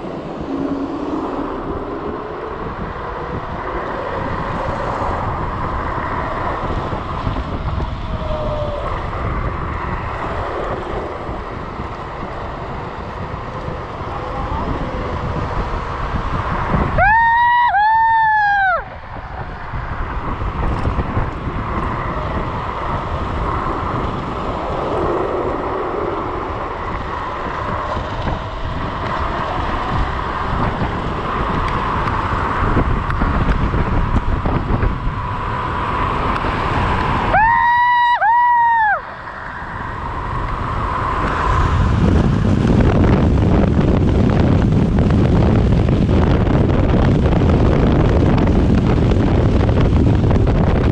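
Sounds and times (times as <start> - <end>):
road rumble: 0.0 - 50.9
wind buffeting microphone: 0.0 - 50.9.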